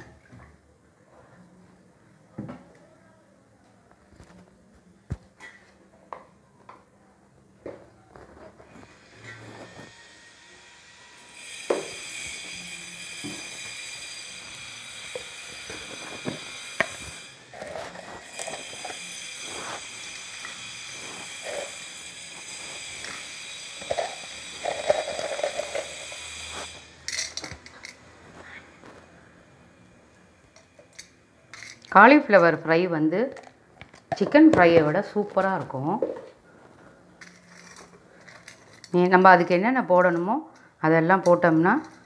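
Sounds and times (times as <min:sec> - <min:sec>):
hot oil hissing and crackling: 0:08.8 - 0:29.1.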